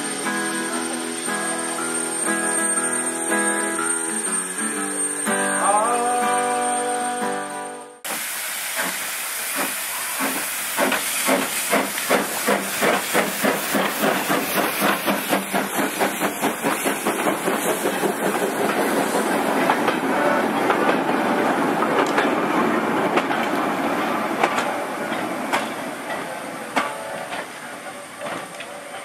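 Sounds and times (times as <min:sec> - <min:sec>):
steam hissing: 0:00.0 - 0:05.4, 0:08.0 - 0:29.0.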